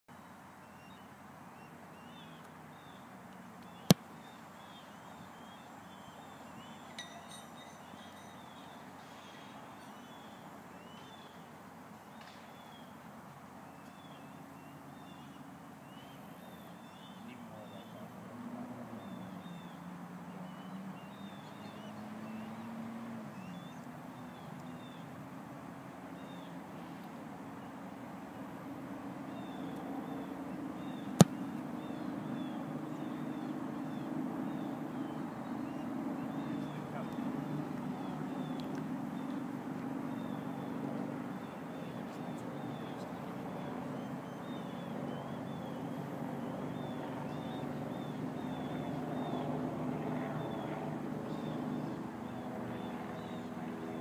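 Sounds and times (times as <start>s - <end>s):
small birds chirping: 29.2s - 49.6s
football being kicked: 31.2s - 31.4s.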